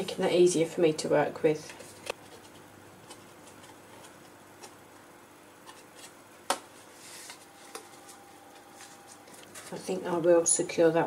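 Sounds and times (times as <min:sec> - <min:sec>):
card and twine rustling on table: 0:05.6 - 0:10.0.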